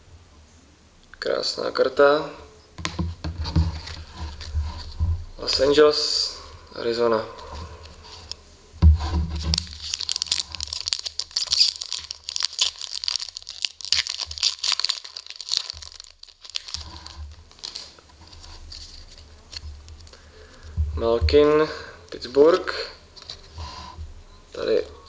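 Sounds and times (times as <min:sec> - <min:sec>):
thump: 0:02.8 - 0:03.8, 0:08.8 - 0:09.6
foil wrapper crinkling: 0:09.4 - 0:20.6
cards rustling: 0:09.4 - 0:20.7.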